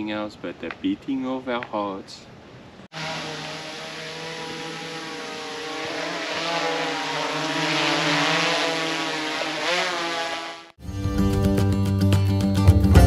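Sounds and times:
quadcopter drone buzzing: 0:02.9 - 0:10.8.

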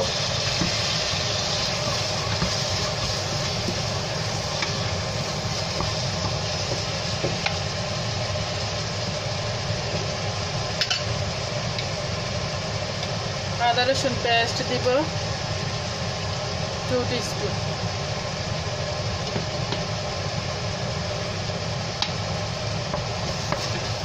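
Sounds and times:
steady low hum: 0:00.0 - 0:24.0
vegetables sizzling in oil: 0:00.0 - 0:24.0.

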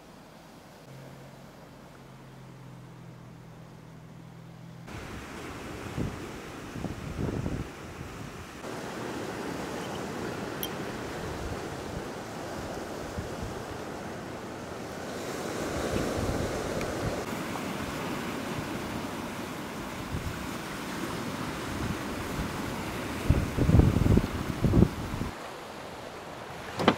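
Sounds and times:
wind: 0:00.0 - 0:26.9
ocean surf breaking on shore: 0:04.9 - 0:26.9.

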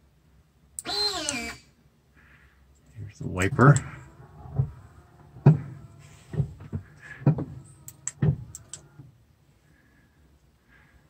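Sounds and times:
wiper motor hum: 0:03.0 - 0:09.2
wiper thump: 0:05.4 - 0:07.6, 0:08.2 - 0:08.4.

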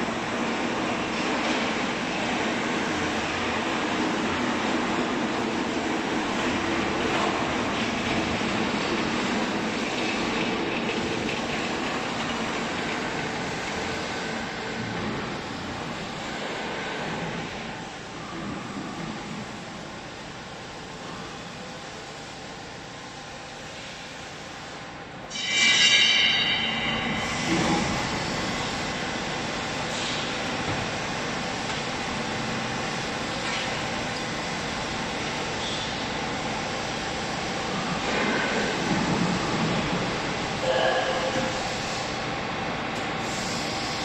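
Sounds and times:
machinery rumble and hiss: 0:00.0 - 0:44.0
baling press high-pitched squeal: 0:25.3 - 0:27.5.

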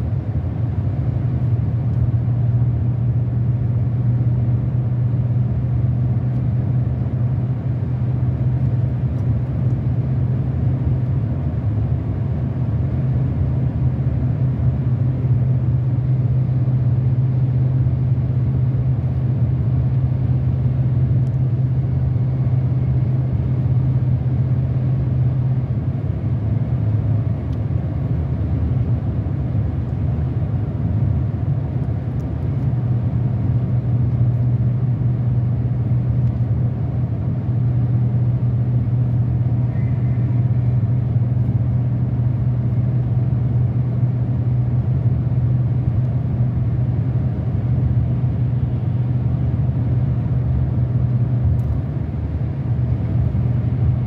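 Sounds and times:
car engine drone: 0:00.0 - 0:54.0.

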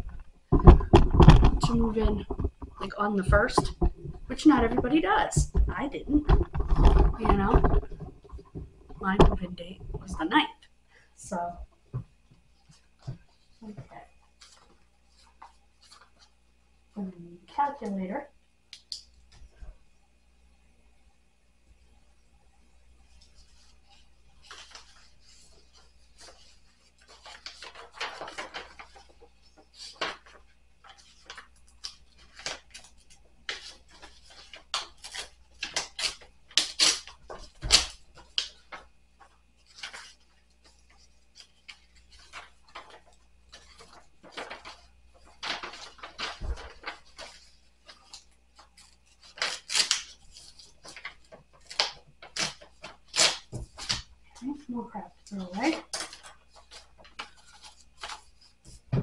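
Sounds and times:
paper envelopes rustling: 0:12.4 - 0:16.5, 0:23.0 - 0:59.0.

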